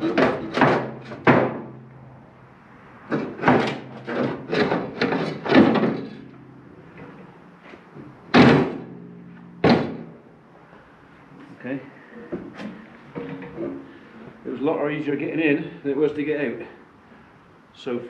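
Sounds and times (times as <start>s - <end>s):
metal clunks and knocks: 0.0s - 2.3s, 3.0s - 10.3s, 12.2s - 14.3s
loud metal bangs: 0.0s - 10.6s.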